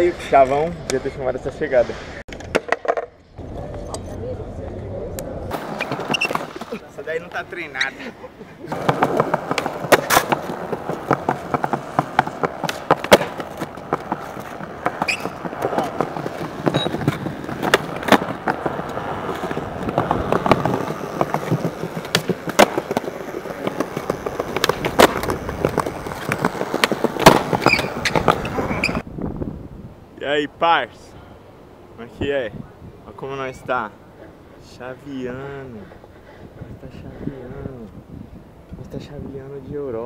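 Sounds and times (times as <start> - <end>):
skateboard clacking on ground: 2.3 - 3.9, 5.5 - 7.4, 8.7 - 29.1
skateboard wheels rumbling on stone: 5.4 - 29.1.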